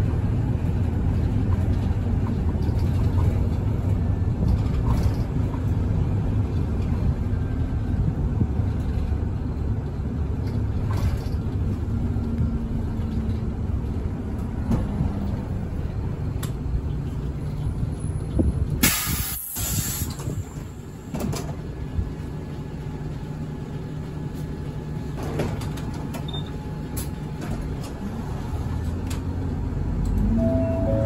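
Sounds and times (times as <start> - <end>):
bus engine droning: 0.0 - 31.0
air brake hiss: 18.8 - 20.6.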